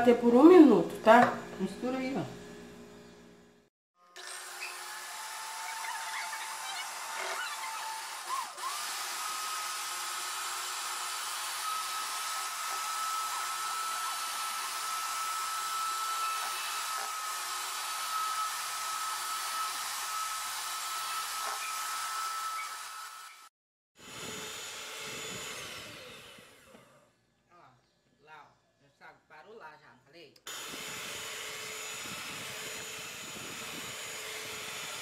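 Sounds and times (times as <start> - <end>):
electric hand mixer whining: 4.0 - 27.1, 30.5 - 35.0.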